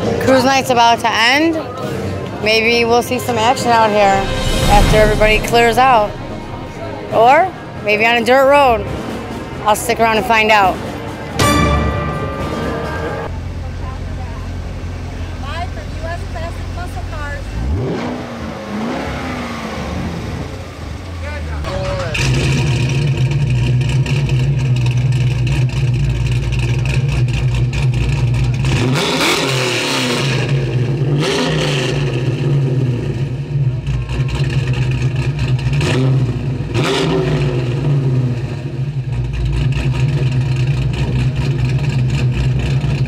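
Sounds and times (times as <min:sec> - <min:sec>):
cars driving past: 0:01.7 - 0:23.4
car engines running: 0:13.3 - 0:43.0
engine revs: 0:17.4 - 0:21.1, 0:21.7 - 0:43.0.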